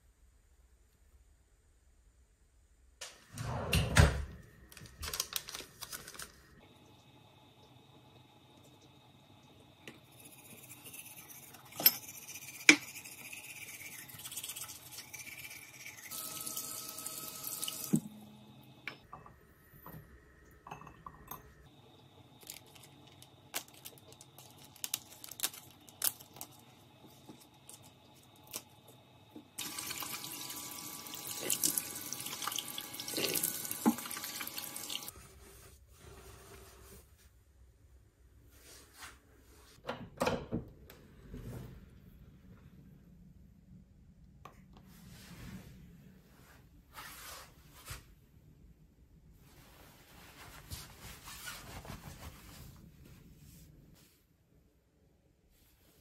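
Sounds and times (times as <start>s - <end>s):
tap water running into sink: 29.6s - 35.1s.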